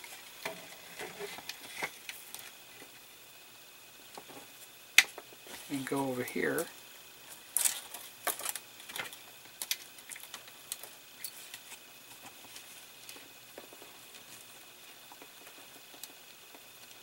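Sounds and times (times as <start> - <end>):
fingers clicking and rustling wires: 7.3 - 17.0.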